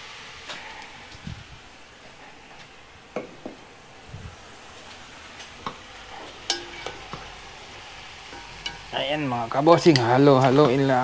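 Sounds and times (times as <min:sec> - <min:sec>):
meat sizzling in a hot pan: 0:00.0 - 0:11.0
utensil knocking and scraping pan: 0:05.6 - 0:07.3, 0:08.3 - 0:08.9.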